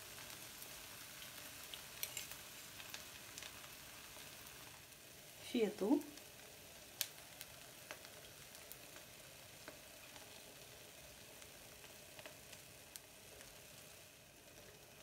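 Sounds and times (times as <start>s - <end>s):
eggs sizzling in oil: 0.0s - 15.0s
fork clicking against pan: 2.0s - 2.4s.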